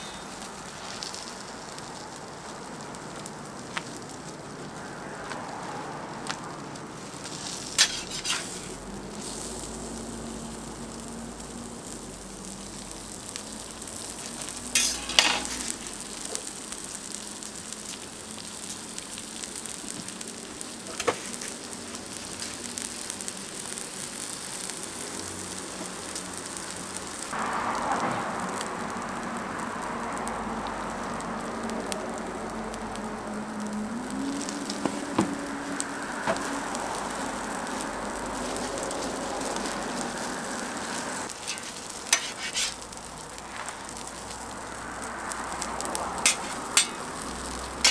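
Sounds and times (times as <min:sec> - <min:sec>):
food sizzling on a griddle: 0:00.0 - 0:47.9.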